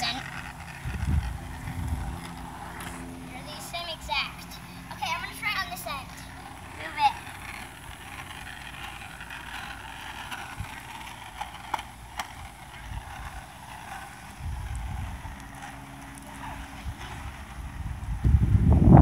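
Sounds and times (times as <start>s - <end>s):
wind buffeting microphone: 0.0s - 4.9s, 6.0s - 19.0s
wheels clicking over speed bump: 0.0s - 18.4s
board wheels rolling on asphalt: 0.0s - 19.0s.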